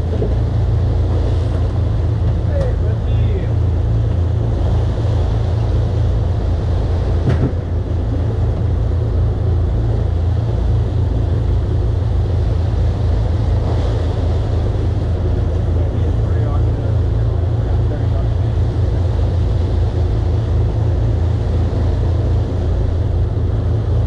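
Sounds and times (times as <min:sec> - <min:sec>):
boat engine droning: 0:00.0 - 0:24.0
hull and water noise: 0:00.0 - 0:24.0
brief knock: 0:07.2 - 0:07.6.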